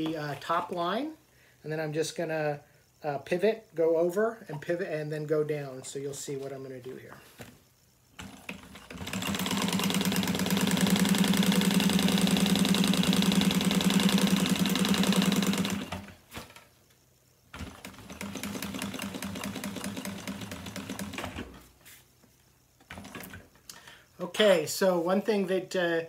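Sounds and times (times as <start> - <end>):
sewing machine stitching: 8.2 - 16.2, 17.5 - 21.6, 22.9 - 23.5.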